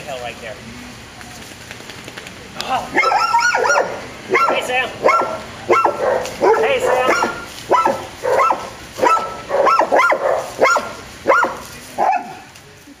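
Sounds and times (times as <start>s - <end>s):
dog barking: 3.0s - 12.5s.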